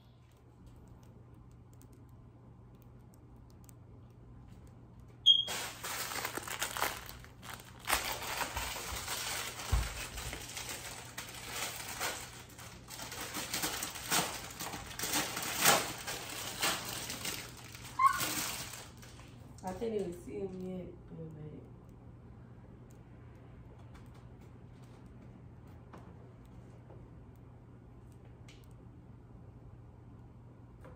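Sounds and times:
plastic packaging crinkling: 5.2s - 19.8s.

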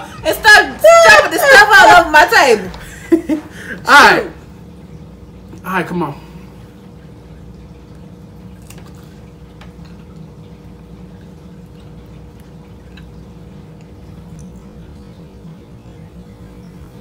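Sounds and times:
steady low hum: 0.0s - 17.0s
mouth chewing clicks and smacks: 11.6s - 14.7s.

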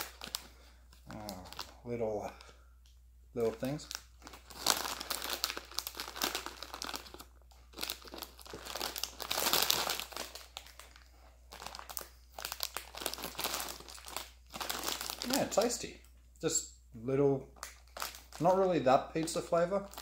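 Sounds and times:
foil snack bag crinkling: 0.0s - 1.8s, 3.4s - 15.9s, 17.6s - 20.0s.

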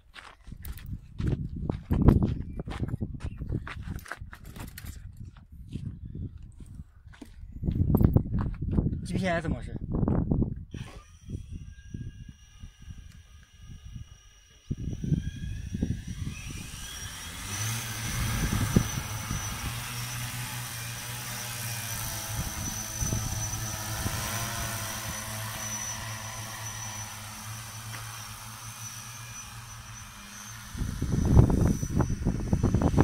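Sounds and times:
wind rumbling on microphone: 0.0s - 33.0s
drone motors whining: 10.7s - 33.0s.

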